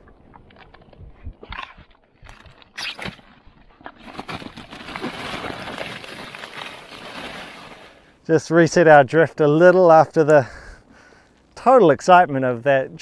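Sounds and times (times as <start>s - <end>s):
plastic bags rustling: 4.0s - 8.1s.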